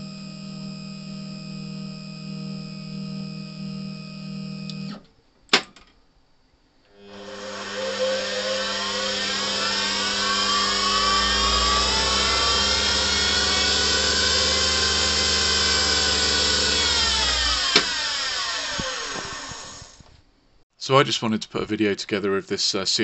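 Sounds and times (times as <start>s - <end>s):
lathe motor whining: 6.9s - 20.1s.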